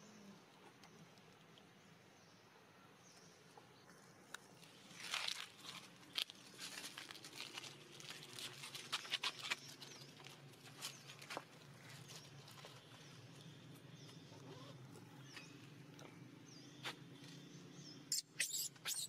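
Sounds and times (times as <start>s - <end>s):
dry leaves rustling and crackling: 4.6s - 12.8s.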